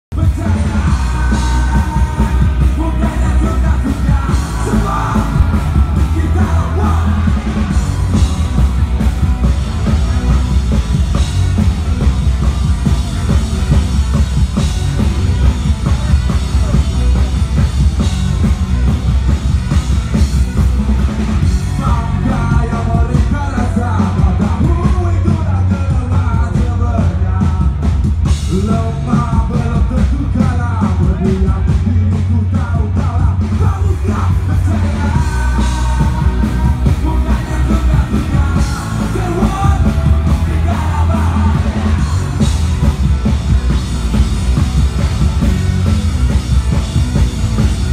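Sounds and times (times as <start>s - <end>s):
sung and shouted vocals: 0.1s - 9.3s, 21.6s - 27.8s, 28.5s - 43.1s
live rock band playing: 0.1s - 47.9s.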